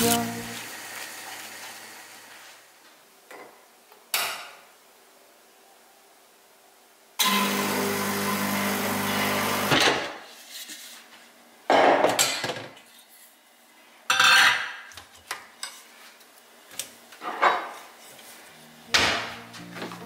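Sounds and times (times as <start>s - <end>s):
espresso machine humming: 0.0s - 2.4s.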